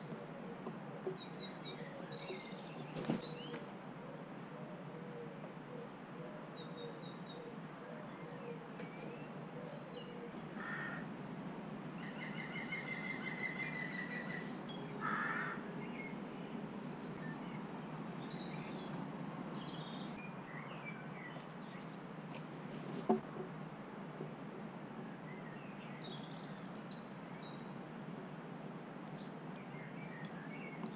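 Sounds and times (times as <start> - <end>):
small birds chirping: 0.0 - 3.8, 29.1 - 30.9
crow cawing: 10.6 - 11.0, 15.0 - 15.6.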